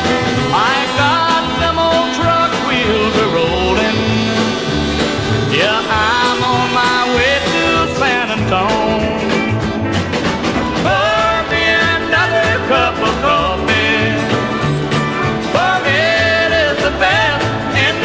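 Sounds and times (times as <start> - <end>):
country music: 0.0 - 18.0.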